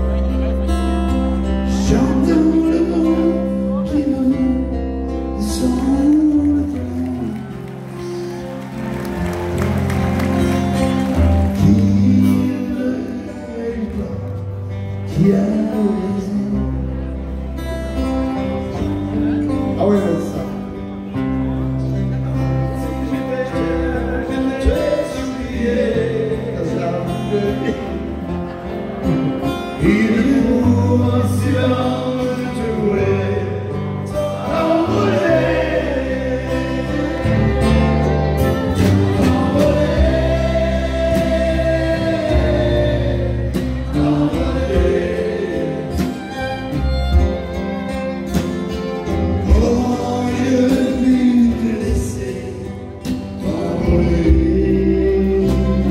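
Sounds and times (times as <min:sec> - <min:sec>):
guitar: 0:00.0 - 0:55.9
low bass notes: 0:00.0 - 0:55.9
man singing into a microphone: 0:01.4 - 0:07.7, 0:11.5 - 0:17.4, 0:22.9 - 0:28.2, 0:29.1 - 0:46.4, 0:49.3 - 0:55.9.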